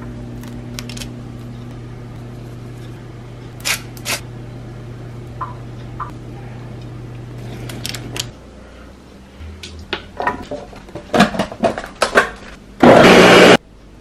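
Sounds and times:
blender running: 12.8 - 13.6.

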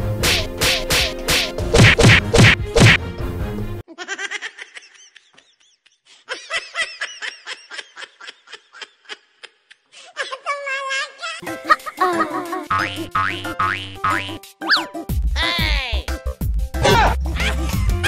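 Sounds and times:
background music: 0.0 - 3.8, 11.4 - 18.0
loud whack hits: 0.2 - 3.0.

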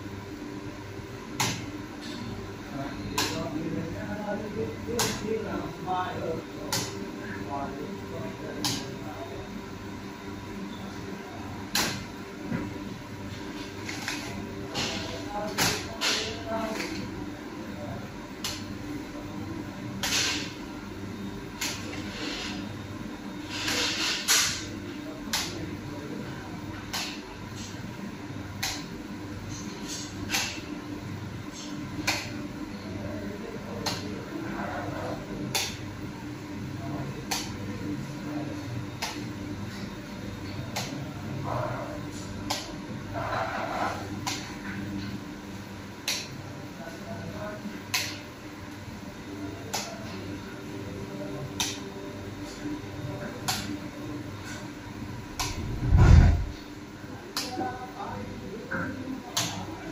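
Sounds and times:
workroom hum: 0.0 - 59.9
machine hum: 54.9 - 57.0
heavy low thump: 55.6 - 56.6.

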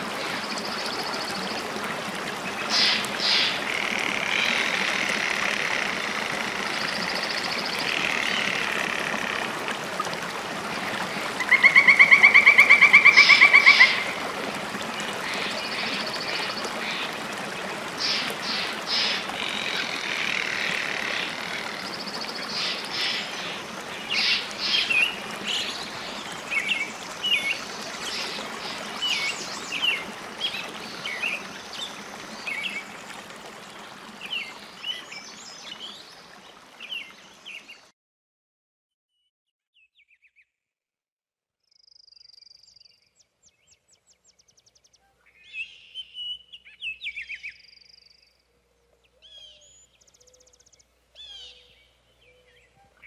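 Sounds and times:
running water: 0.0 - 37.9.

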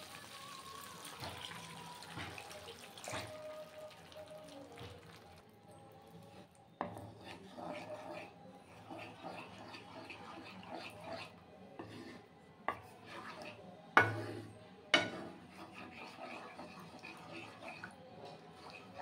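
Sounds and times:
spatula scraping a pan: 6.3 - 19.0
spatula knocking against pan: 14.0 - 14.3, 15.0 - 15.2.

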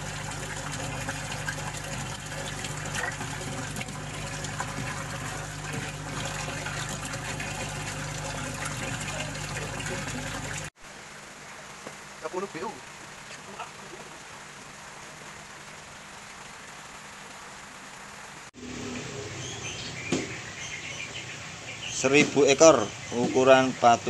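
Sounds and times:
bubbling aeration: 0.0 - 10.7
steady low hum: 0.0 - 10.7
water splashing and gushing: 0.0 - 16.7, 18.5 - 24.0.

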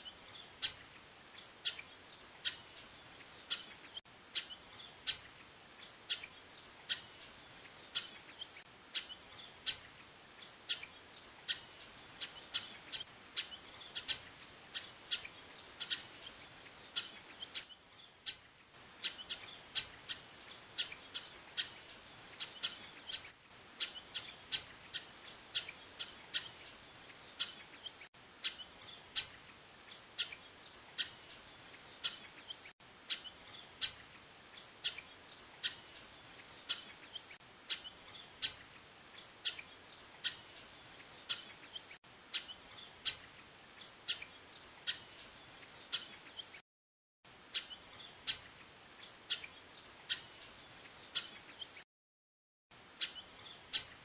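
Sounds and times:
high insect trill: 0.0 - 46.6, 47.3 - 51.8, 52.7 - 54.0
blackbird call notes: 10.7 - 18.4, 19.0 - 34.0, 34.6 - 38.6, 53.0 - 54.0.

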